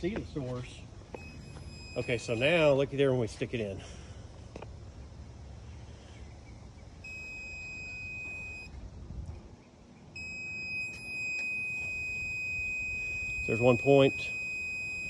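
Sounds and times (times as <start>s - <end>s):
high-pitched alarm tone: 1.1s - 2.8s, 7.0s - 8.7s, 10.2s - 15.0s.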